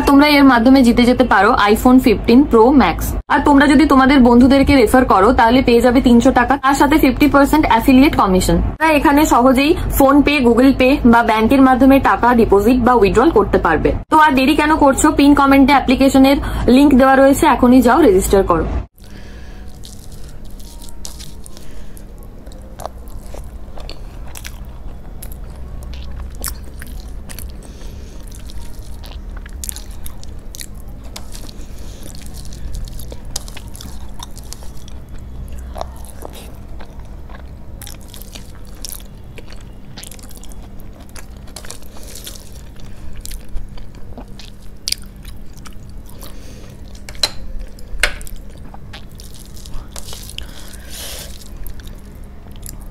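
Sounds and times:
chewing: 0:19.1 - 0:52.9.

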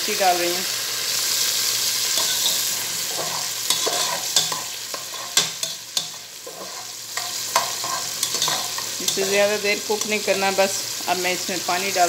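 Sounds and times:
onions sizzling in oil: 0:00.0 - 0:12.0.

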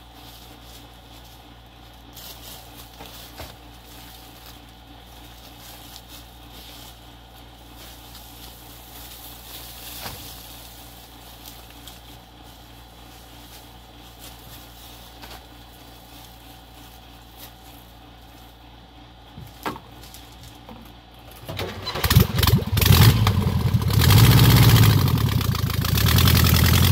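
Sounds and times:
small buggy engine starting: 0:21.4 - 0:26.9.

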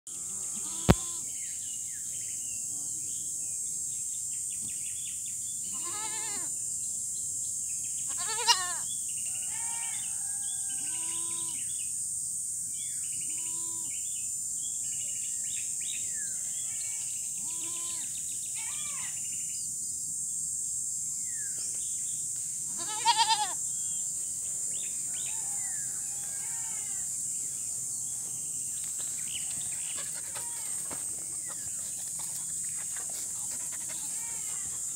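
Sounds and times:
high insect buzz: 0:00.1 - 0:03.3, 0:05.5 - 0:14.4, 0:15.5 - 0:34.9
goats bleating: 0:00.4 - 0:01.2, 0:05.7 - 0:06.5, 0:08.1 - 0:08.8, 0:17.4 - 0:18.1, 0:22.8 - 0:23.6.

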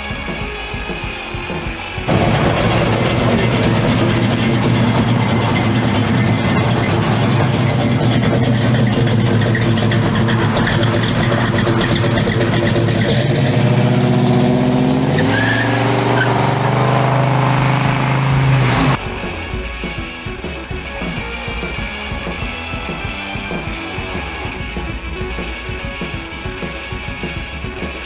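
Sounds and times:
car engine accelerating: 0:01.4 - 0:19.4.

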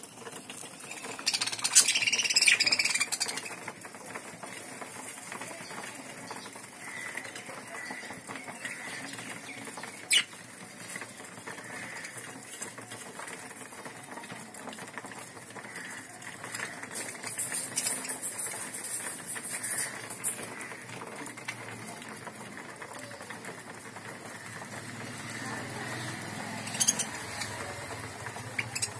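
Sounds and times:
budgerigars chattering: 0:01.0 - 0:03.6, 0:25.9 - 0:28.9.

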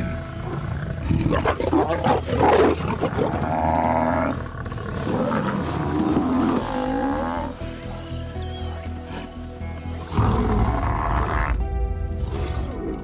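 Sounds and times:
lions snarling and growling: 0:00.3 - 0:07.6, 0:10.0 - 0:11.6
rattling growl: 0:00.4 - 0:07.5.

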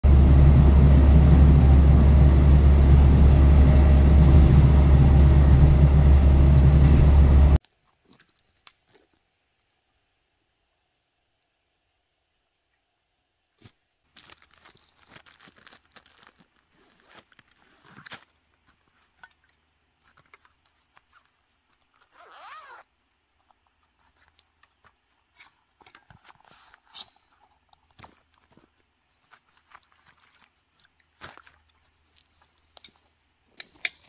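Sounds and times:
gear rustling and crinkling: 0:13.6 - 0:34.0.

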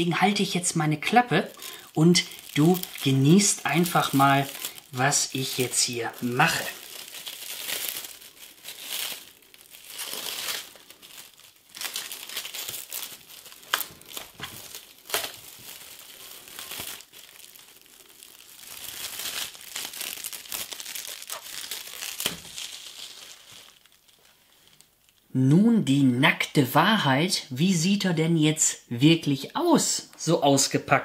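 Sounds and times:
cling film crinkling: 0:00.0 - 0:25.3.

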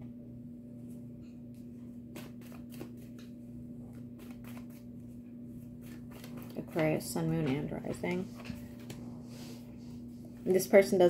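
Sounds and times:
steady low hum: 0:00.0 - 0:11.0
cards being shuffled: 0:02.1 - 0:04.9, 0:05.6 - 0:09.0.

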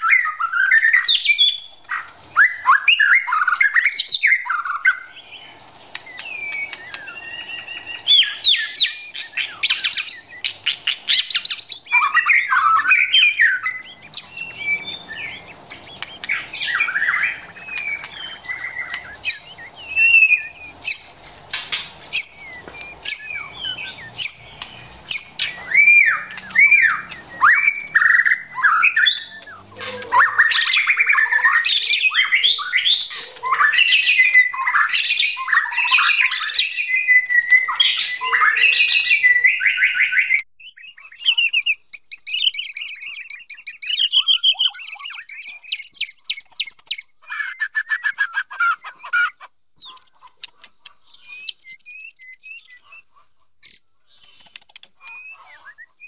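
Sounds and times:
bird clicking chatter: 0:49.9 - 0:52.7, 0:54.1 - 0:55.3.

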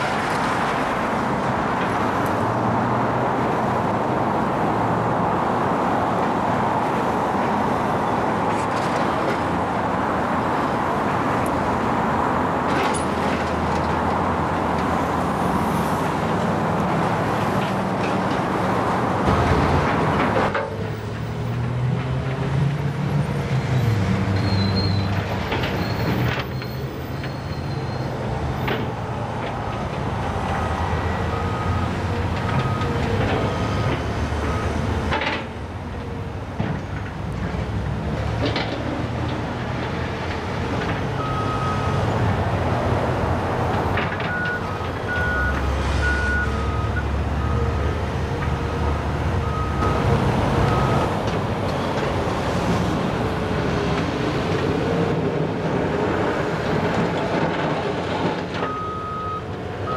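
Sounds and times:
high squeal: 0:24.4 - 0:25.2, 0:25.8 - 0:28.1.

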